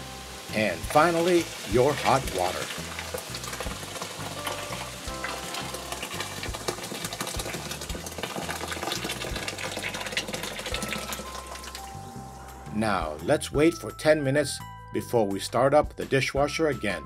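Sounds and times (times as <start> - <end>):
fizzing crackle: 0.0 - 12.2
hot water pouring and splashing: 0.0 - 12.2
soft background music: 0.0 - 17.0.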